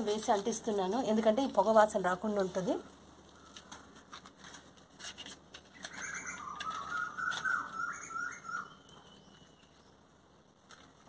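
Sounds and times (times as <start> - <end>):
bird whistling call: 5.8 - 9.7.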